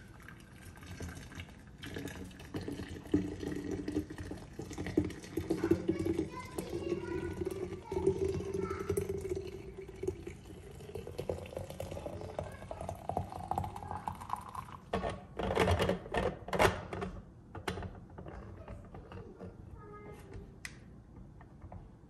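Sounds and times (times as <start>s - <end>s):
liquid pouring into flask: 0.0s - 15.1s.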